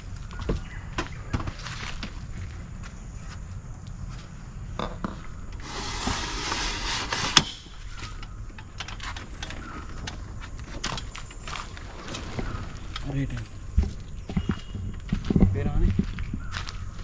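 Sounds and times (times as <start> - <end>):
metal ladder scraping: 5.6 - 11.2.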